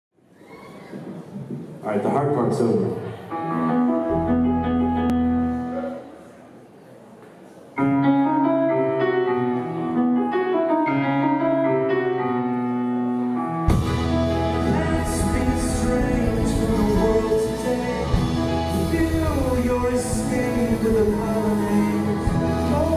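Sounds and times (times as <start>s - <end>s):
keyboard and accordion chords: 3.3s - 6.1s, 7.8s - 22.9s.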